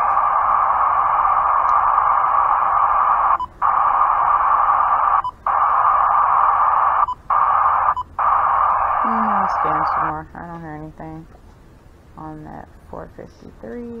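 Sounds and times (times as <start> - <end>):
radio static hiss: 0.0 - 10.3.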